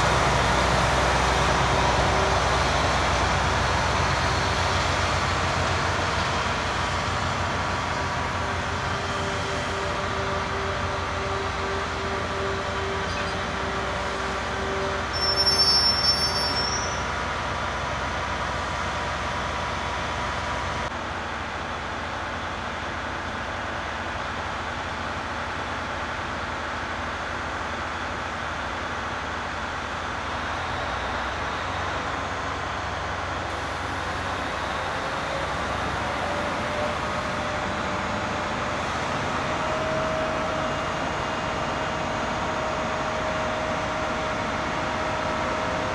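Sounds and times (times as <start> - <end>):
rail grinding train running: 0.0 - 45.9
high-pitched squeal: 9.6 - 17.4.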